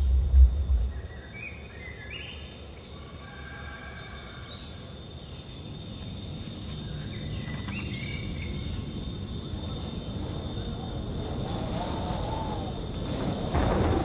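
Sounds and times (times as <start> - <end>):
low rumble: 0.0 - 1.6
crickets chirping: 0.0 - 14.0.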